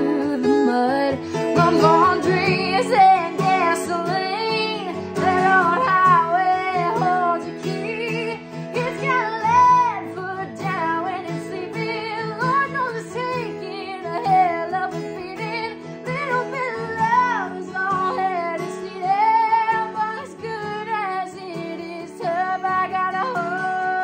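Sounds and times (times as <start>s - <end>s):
strummed acoustic guitar: 0.0s - 24.0s
woman singing: 0.0s - 24.0s.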